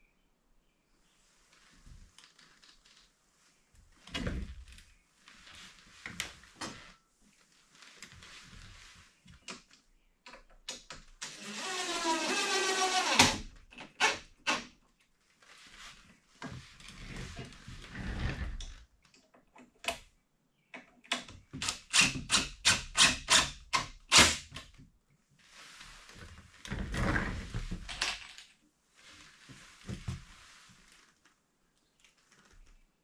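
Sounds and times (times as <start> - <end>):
small power tool motor: 11.3 - 13.3.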